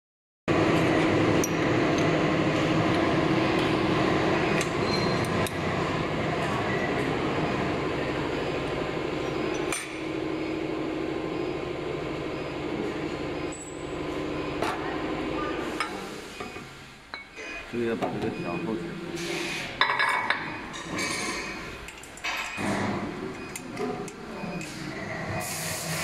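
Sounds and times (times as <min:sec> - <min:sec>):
steady machine hum: 0:00.5 - 0:19.4.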